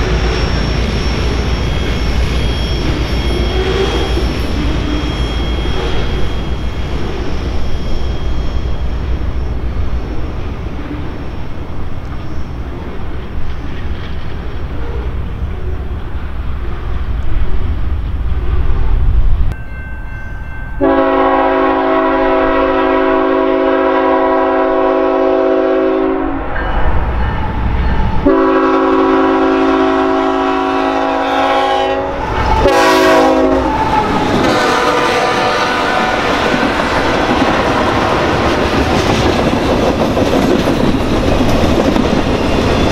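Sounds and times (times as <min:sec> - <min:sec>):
train rumbling past: 0:00.0 - 0:42.9
locomotive air horn blasts: 0:20.8 - 0:26.4, 0:28.2 - 0:37.7.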